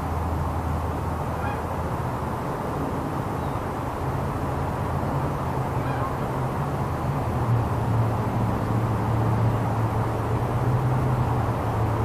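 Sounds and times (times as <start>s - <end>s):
outdoor background noise: 0.0s - 12.0s.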